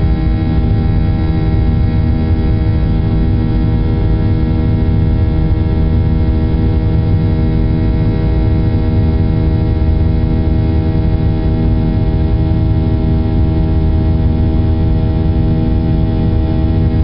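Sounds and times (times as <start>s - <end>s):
jet engine drone in cabin: 0.0s - 17.0s.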